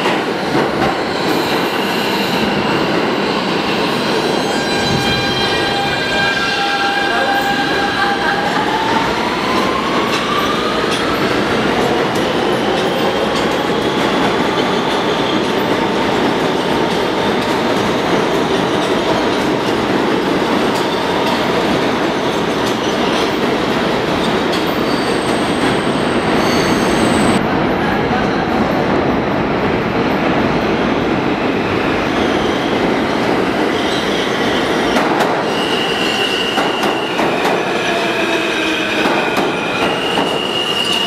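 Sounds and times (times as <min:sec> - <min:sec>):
subway train wheels rumbling: 0:00.0 - 0:41.0
high wheel squeal: 0:01.0 - 0:08.4, 0:24.7 - 0:27.4, 0:35.4 - 0:41.0.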